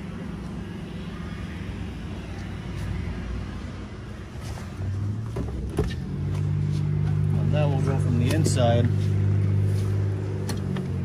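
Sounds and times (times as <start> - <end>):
low mechanical hum: 0.0 - 11.0
lower drone: 0.0 - 11.0.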